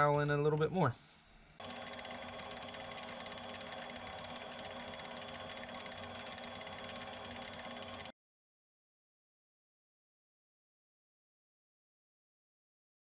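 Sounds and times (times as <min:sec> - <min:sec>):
mini lathe motor whine: 0:01.6 - 0:08.1.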